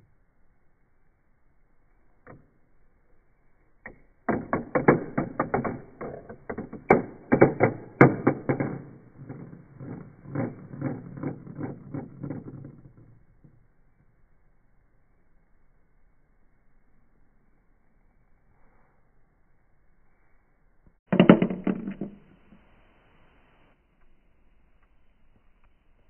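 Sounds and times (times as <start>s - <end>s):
metal marble clattering through plastic: 3.9s - 13.6s, 21.1s - 22.5s.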